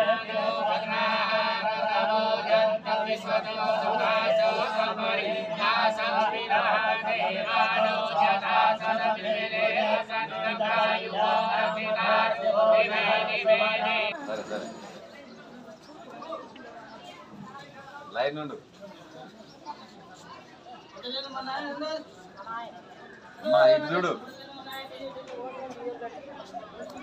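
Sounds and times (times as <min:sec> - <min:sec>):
priest chanting mantras: 0:00.0 - 0:15.0.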